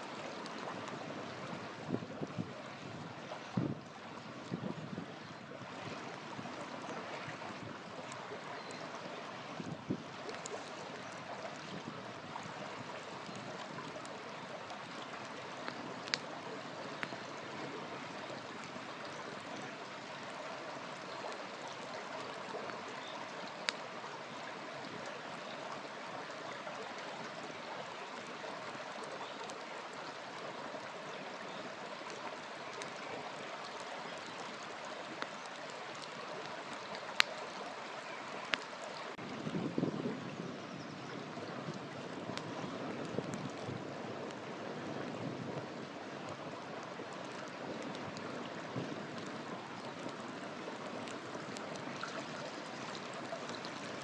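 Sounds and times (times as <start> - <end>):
campfire hissing: 5.8 - 39.2
burning wood popping: 12.9 - 17.4.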